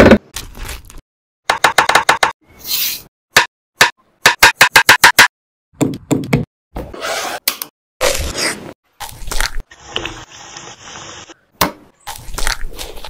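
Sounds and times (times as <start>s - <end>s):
sharp knocks of kitchen work: 1.5s - 2.4s, 3.3s - 6.5s.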